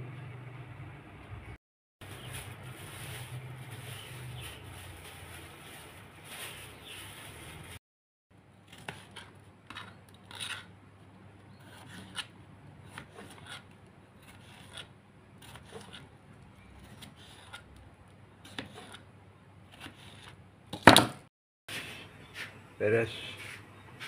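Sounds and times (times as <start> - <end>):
knife cutting a tomato: 11.5 - 17.8, 18.4 - 19.1, 19.7 - 20.4.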